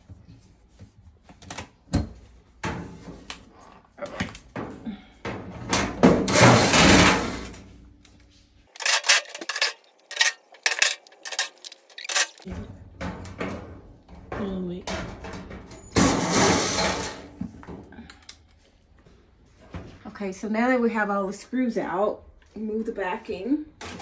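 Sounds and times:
metal clatter: 8.7s - 12.5s.

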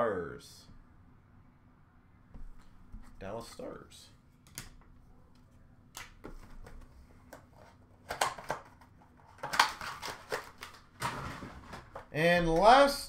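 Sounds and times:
cards and plastic packaging rustling: 6.1s - 12.8s.

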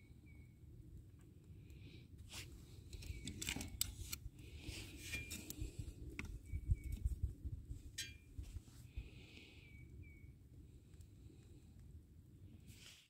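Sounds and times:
wind rumble on microphone: 4.1s - 9.2s.

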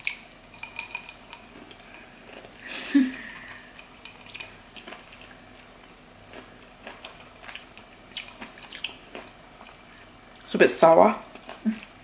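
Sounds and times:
lip smacks and tongue clicks: 6.9s - 9.0s.

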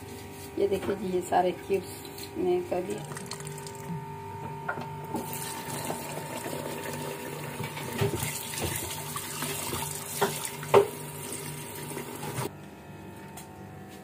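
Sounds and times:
tap water running into bowl: 3.0s - 3.8s, 5.2s - 12.5s
splashes and knocks in bowl: 3.0s - 3.9s, 7.7s - 11.0s.

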